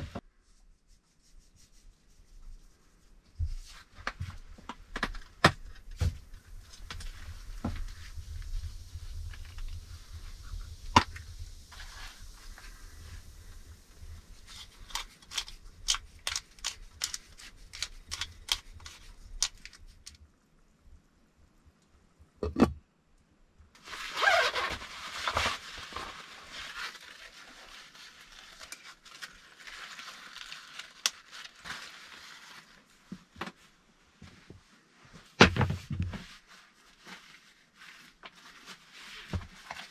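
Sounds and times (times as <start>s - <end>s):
sharp clicks and crackles: 14.4s - 20.2s
fabric rustling: 23.8s - 39.9s.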